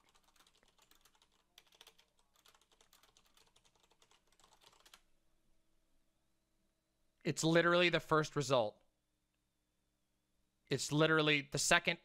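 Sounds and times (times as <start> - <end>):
computer keyboard typing: 0.0 - 5.0.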